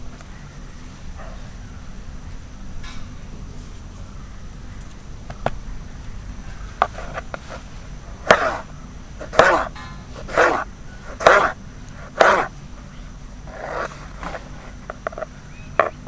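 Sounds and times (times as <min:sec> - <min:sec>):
knife chopping on cutting board: 0:08.2 - 0:12.5
animal calling: 0:08.2 - 0:16.0.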